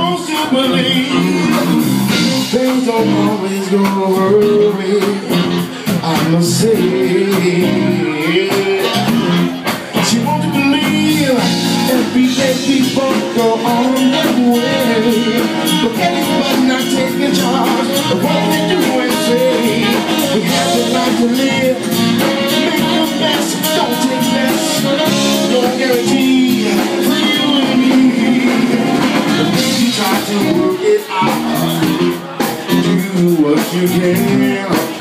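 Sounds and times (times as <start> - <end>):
live blues band: 0.0 - 35.0
saxophone solo: 4.2 - 10.1, 11.2 - 33.2.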